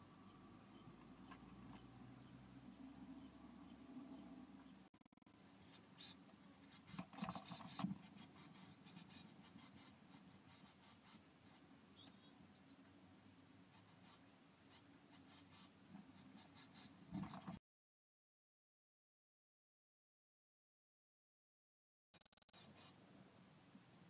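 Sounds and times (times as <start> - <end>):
chicks rustling in nest: 5.1 - 11.7, 13.7 - 17.6
short scratches and taps: 5.6 - 12.2, 13.8 - 17.6.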